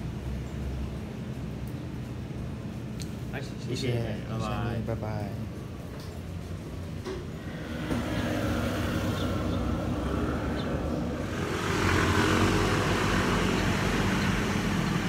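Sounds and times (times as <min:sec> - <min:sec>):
vehicle engine running: 0:07.4 - 0:15.0.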